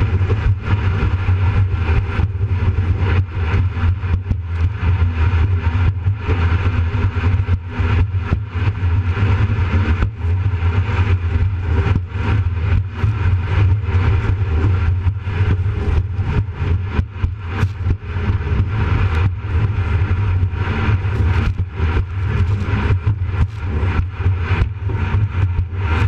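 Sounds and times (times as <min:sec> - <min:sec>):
boat engine drone: 0:00.0 - 0:26.0
water and wind rushing: 0:06.4 - 0:26.0.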